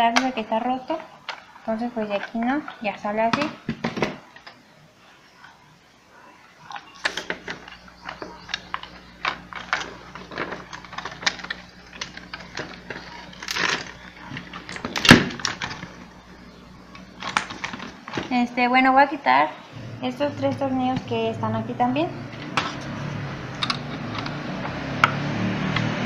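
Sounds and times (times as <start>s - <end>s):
faint steady hum: 0.0s - 25.0s
plastic parts clicking and knocking: 0.1s - 4.6s, 6.7s - 16.0s, 17.0s - 18.4s.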